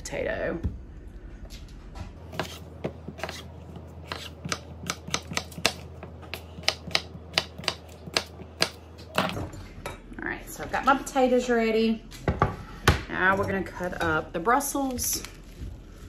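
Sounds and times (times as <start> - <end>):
knife chopping on wooden board: 2.3 - 9.3.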